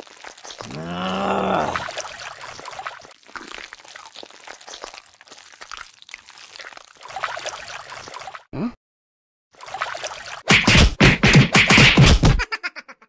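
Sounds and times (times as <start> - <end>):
muddy water sloshing and squelching: 0.0 - 8.5, 9.6 - 10.5.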